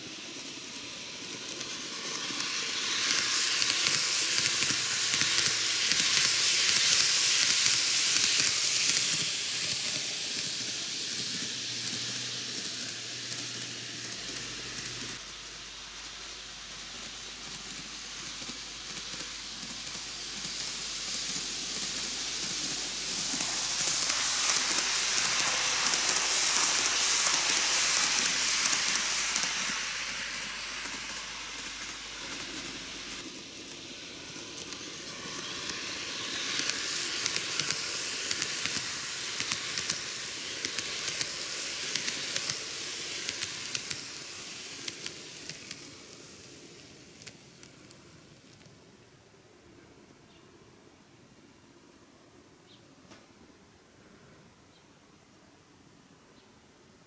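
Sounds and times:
model train whirring: 0:00.0 - 0:49.5
wheels clicking over rail joints: 0:30.8 - 0:48.8.

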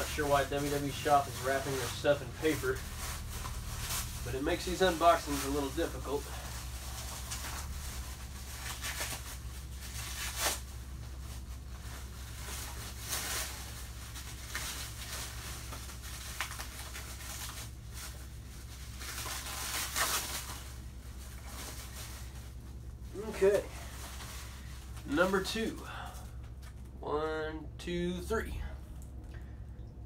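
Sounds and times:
paper tearing and crumpling: 0:00.0 - 0:22.6
steady low hum: 0:00.0 - 0:30.0.

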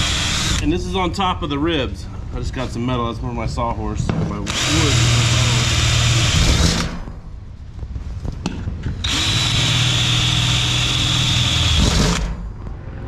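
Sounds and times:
cordless drill whining: 0:00.0 - 0:00.6, 0:09.0 - 0:12.3
drill clicks: 0:09.0 - 0:12.3.

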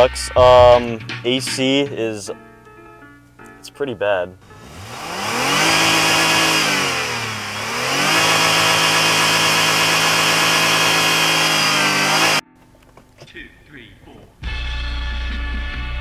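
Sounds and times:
car engine revving: 0:04.4 - 0:12.5.

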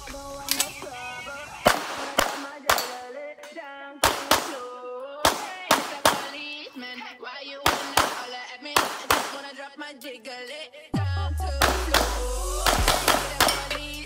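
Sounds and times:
background music: 0:00.0 - 0:07.0, 0:07.6 - 0:14.0
pistol shots: 0:01.6 - 0:03.1, 0:04.0 - 0:06.5, 0:07.6 - 0:09.5, 0:11.6 - 0:13.8.

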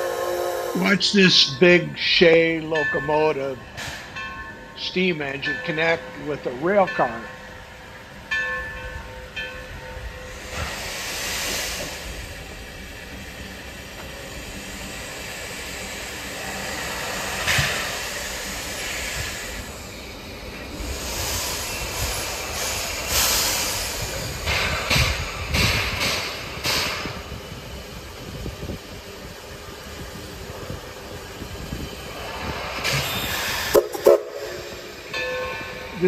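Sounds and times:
steam hissing: 0:00.0 - 0:01.8, 0:10.2 - 0:36.0
steam locomotive moving slowly: 0:00.0 - 0:36.0.

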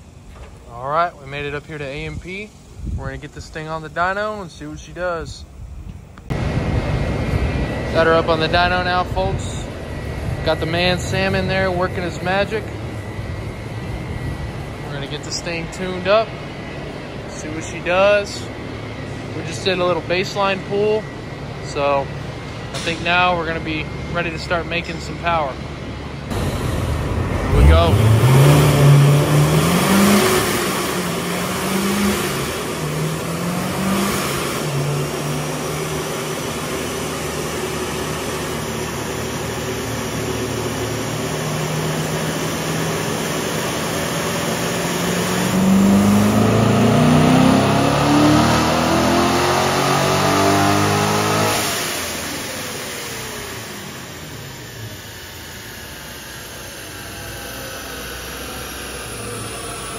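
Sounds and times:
car engine revving: 0:26.2 - 0:59.9.

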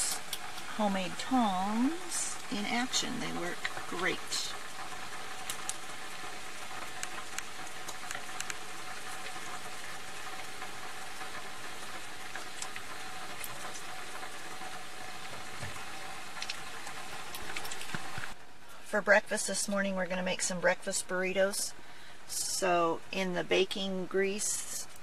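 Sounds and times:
bacon sizzling: 0:00.0 - 0:18.6.

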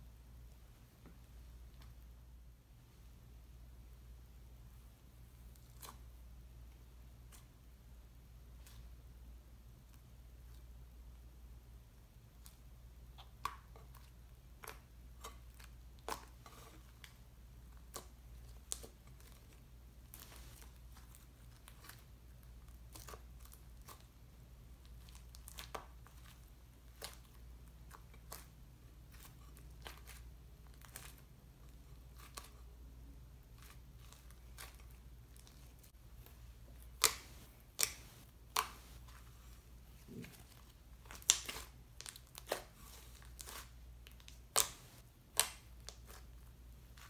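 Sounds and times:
low steady hum: 0:00.0 - 0:47.0
hands squishing slime: 0:05.3 - 0:06.2, 0:12.0 - 0:47.0
sticky slime clicks and crackles: 0:36.9 - 0:38.8, 0:41.0 - 0:47.0.

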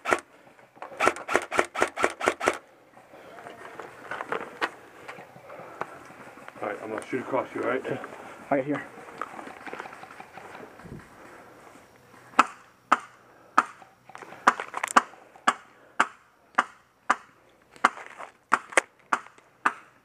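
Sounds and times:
airsoft rifle shots: 0:00.0 - 0:00.3, 0:00.9 - 0:02.6, 0:12.3 - 0:13.8.

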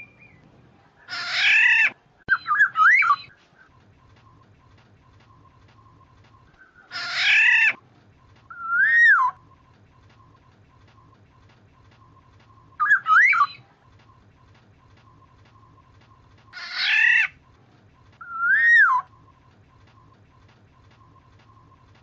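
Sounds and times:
bird harsh call: 0:06.6 - 0:07.8.

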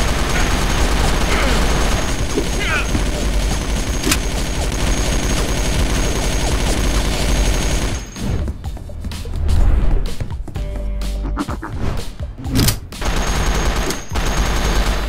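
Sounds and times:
automatic gunfire: 0:00.0 - 0:08.0
background music: 0:00.0 - 0:15.0.

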